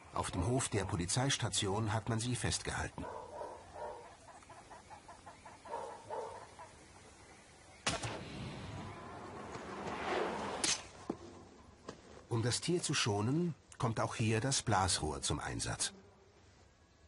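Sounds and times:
faint animal calls: 3.0 - 7.0.

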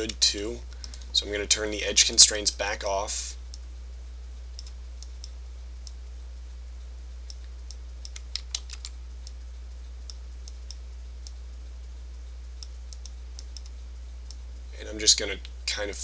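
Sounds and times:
steady low hum: 0.0 - 16.0
mouse and keyboard clicks: 8.1 - 9.0.

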